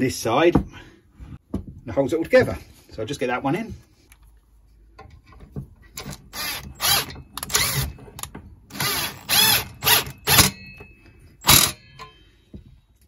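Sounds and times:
ratcheting driver bursts: 8.7s - 10.6s.

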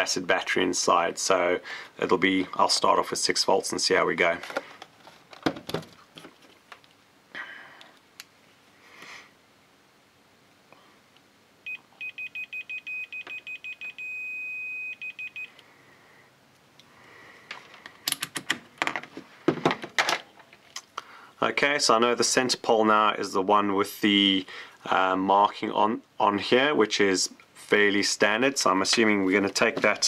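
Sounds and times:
cable rustling: 4.3s - 7.0s
multimeter continuity beeps: 11.6s - 15.6s.

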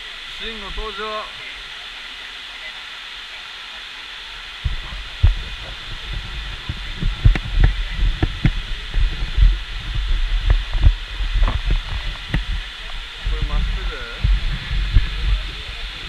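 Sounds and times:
faint hiss: 0.0s - 16.0s
low thumps and rumble: 4.6s - 16.0s.

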